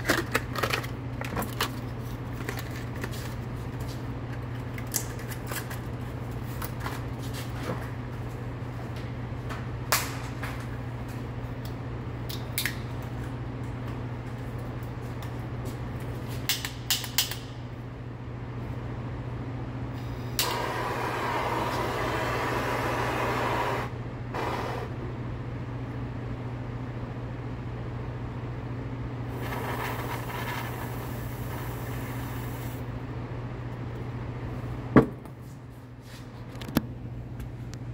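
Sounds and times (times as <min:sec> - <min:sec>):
steady low hum: 0:00.0 - 0:37.9
propane torch hissing: 0:20.1 - 0:24.9, 0:29.3 - 0:32.8.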